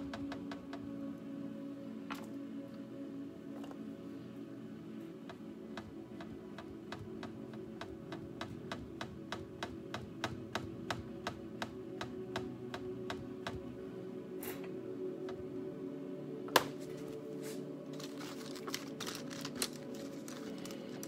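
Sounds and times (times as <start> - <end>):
background music: 0.0 - 21.0.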